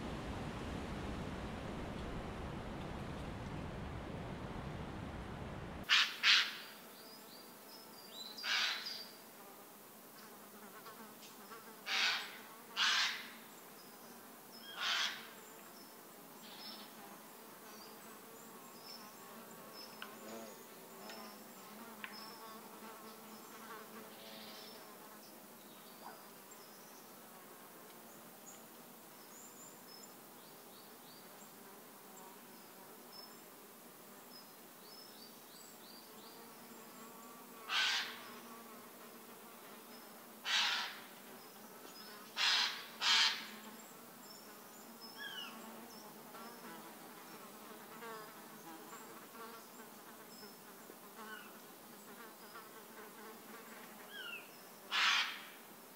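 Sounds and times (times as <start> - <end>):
insects buzzing: 0.0 - 55.9
loud harsh calls: 37.7 - 38.2, 40.5 - 41.0, 54.9 - 55.5.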